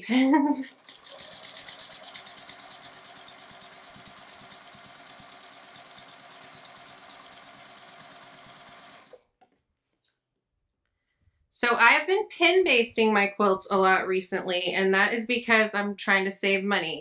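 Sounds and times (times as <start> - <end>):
sewing machine stitching: 0.6 - 9.2.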